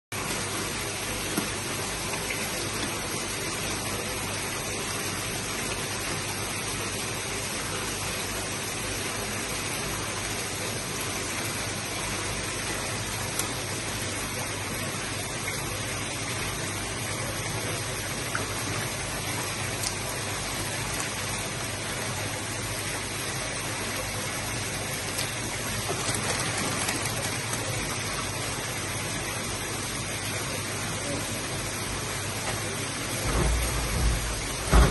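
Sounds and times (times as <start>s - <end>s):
running water rushing: 0.1s - 34.9s
water sloshing in a tub: 0.2s - 34.9s
plastic bag crinkling: 25.6s - 28.1s.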